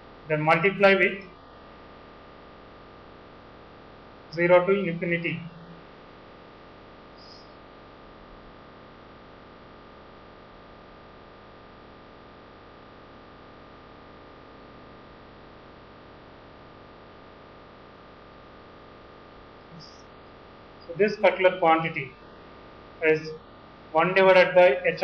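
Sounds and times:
thin constant tone: 0:00.0 - 0:25.0
background hiss: 0:09.6 - 0:25.0.

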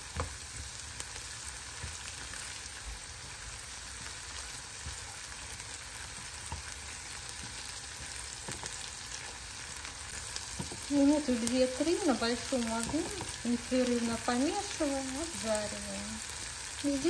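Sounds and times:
onion sizzling in a frying pan: 0:00.0 - 0:17.0
spatula stirring and scraping: 0:01.3 - 0:13.7.

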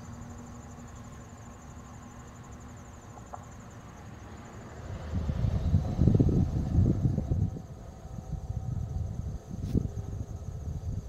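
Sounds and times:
crickets chirping: 0:00.0 - 0:11.0
low rumble: 0:05.0 - 0:11.0.

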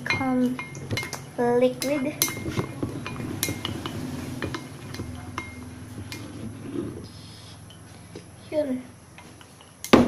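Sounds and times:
spoon clinking against glass bowl: 0:01.8 - 0:05.7.

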